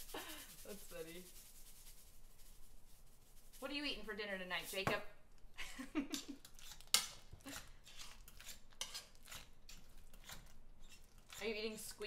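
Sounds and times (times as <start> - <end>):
potato masher scraping in pot: 6.2 - 12.0.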